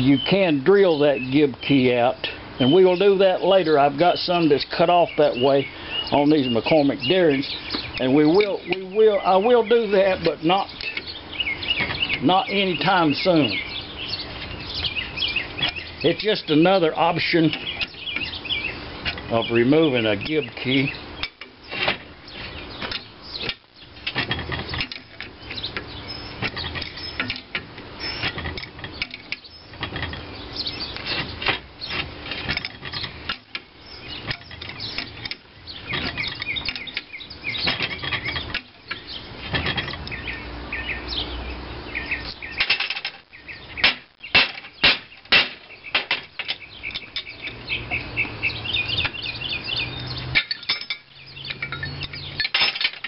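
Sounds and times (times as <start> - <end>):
birds chirping: 0.0 - 53.0
wrench clinking on metal screw: 22.8 - 40.2, 44.3 - 47.6, 50.3 - 53.0
sharp metal clanks: 22.8 - 40.3, 43.8 - 47.6, 50.3 - 53.0.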